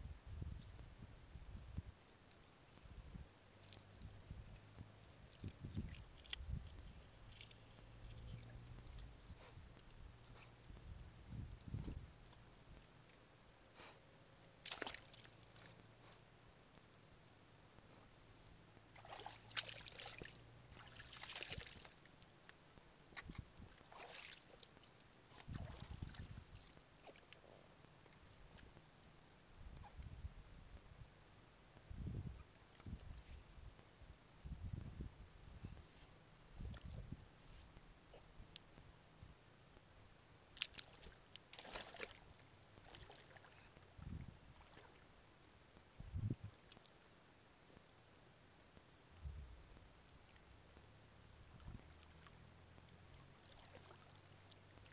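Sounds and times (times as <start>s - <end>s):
wading through shallow water: 0.6s - 13.1s, 14.5s - 16.4s, 17.8s - 30.0s, 40.4s - 47.1s, 49.4s - 54.9s
shallow water sloshing: 14.6s - 15.8s, 18.9s - 22.2s, 23.2s - 28.7s, 40.6s - 45.2s, 53.2s - 54.9s.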